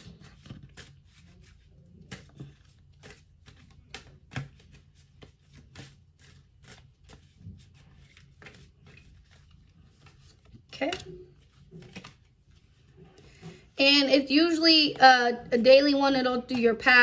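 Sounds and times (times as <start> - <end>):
cards being shuffled: 0.0 - 13.8.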